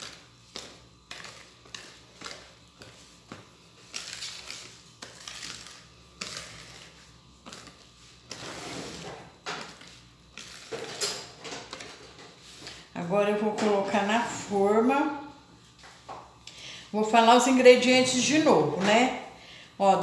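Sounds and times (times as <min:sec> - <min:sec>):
whisk stirring batter in bowl: 0:00.0 - 0:13.8.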